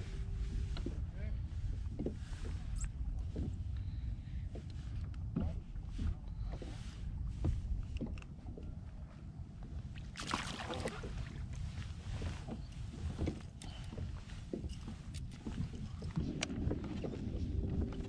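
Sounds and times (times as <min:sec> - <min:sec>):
water lapping against hull: 0:00.0 - 0:18.0
water splash: 0:10.1 - 0:11.3.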